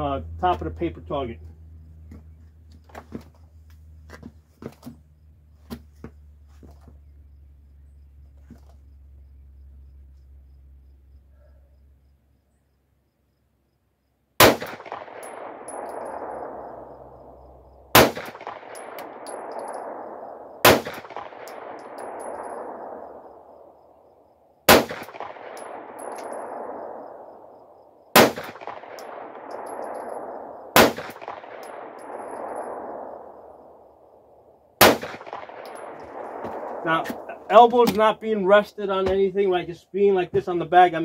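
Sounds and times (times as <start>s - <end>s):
pistol shots: 14.4s - 17.3s, 17.9s - 23.6s, 24.7s - 33.8s, 34.8s - 38.1s.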